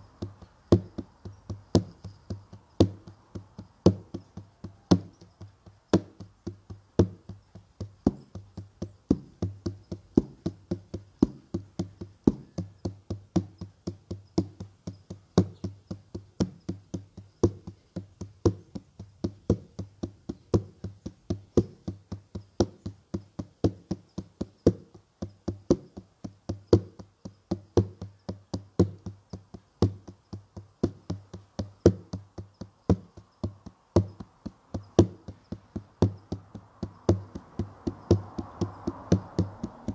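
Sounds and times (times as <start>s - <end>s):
steady drumbeat: 24.8s - 39.9s.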